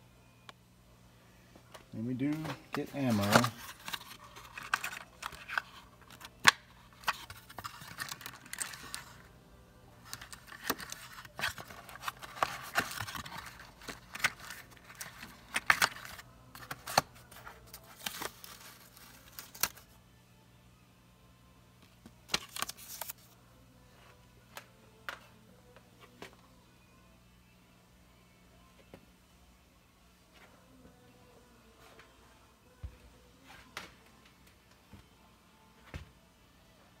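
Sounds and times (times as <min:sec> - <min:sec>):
cardboard and paper rustling: 0:02.2 - 0:06.3, 0:07.0 - 0:09.2, 0:10.0 - 0:19.8.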